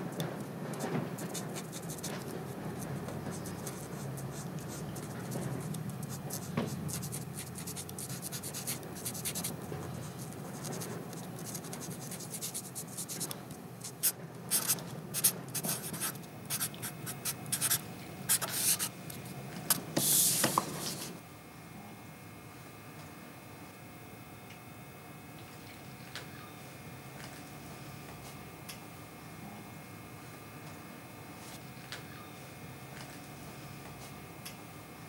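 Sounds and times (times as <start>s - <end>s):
pen scratching on paper: 0.8s - 18.9s.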